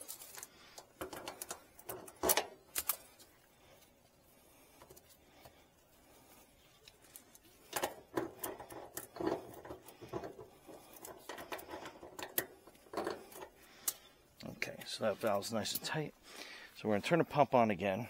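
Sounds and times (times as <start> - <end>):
metal hose fitting clicking and scraping: 0.0 - 3.9, 6.8 - 16.0.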